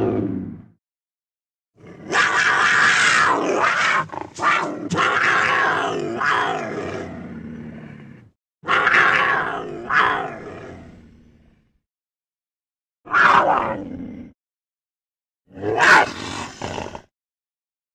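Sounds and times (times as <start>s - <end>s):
cheetah growling and snarling: 0.0s - 0.8s, 1.8s - 11.8s, 13.1s - 14.4s, 15.5s - 17.1s.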